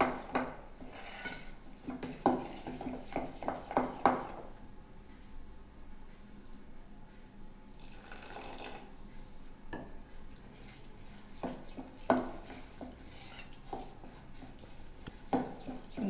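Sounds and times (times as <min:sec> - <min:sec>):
spoon stirring batter: 0:00.0 - 0:04.6, 0:09.1 - 0:16.0.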